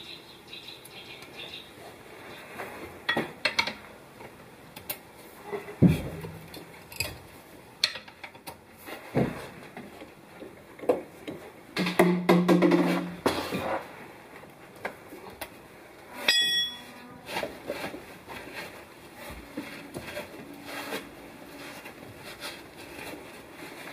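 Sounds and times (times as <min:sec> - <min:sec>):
sharp metallic clink: 0:16.3 - 0:17.0.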